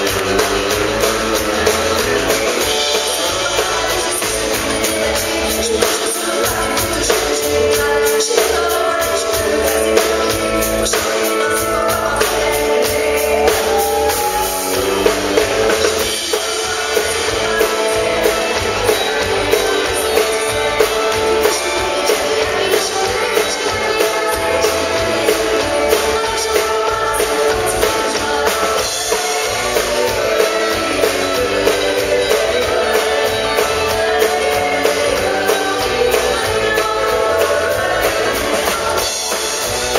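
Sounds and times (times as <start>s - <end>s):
bass guitar: 0.0s - 39.9s
drum kit beat: 0.0s - 39.9s
electric guitar: 0.0s - 39.9s
woman singing into a microphone: 1.3s - 39.7s.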